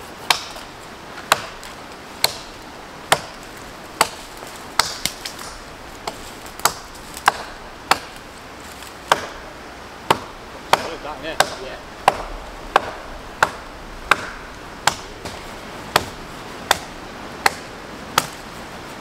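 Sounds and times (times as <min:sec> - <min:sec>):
axe chopping wood: 0:00.2 - 0:03.4, 0:04.0 - 0:08.2, 0:09.0 - 0:09.4, 0:10.1 - 0:18.4.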